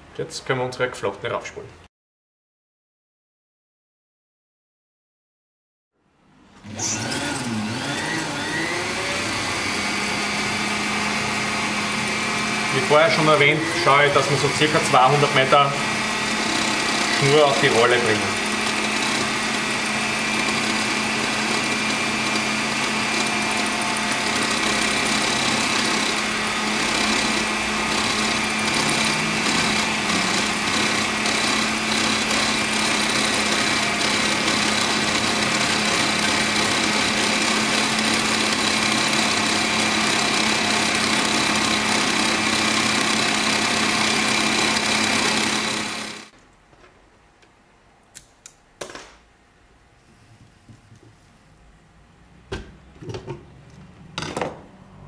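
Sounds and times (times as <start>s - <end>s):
line-spooling machine whine: 18.7s - 38.0s.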